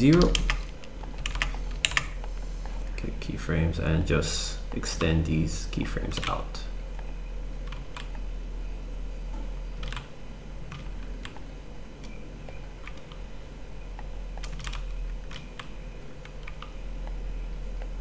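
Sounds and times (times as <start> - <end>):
steady low hum: 0.0 - 18.0
keyboard and mouse clicks: 0.1 - 2.2, 13.9 - 17.2.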